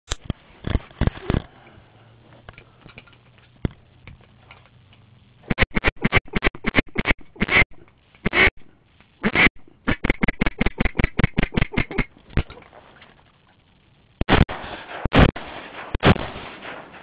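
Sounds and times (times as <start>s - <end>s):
duck quacking rapidly: 9.2s - 12.1s.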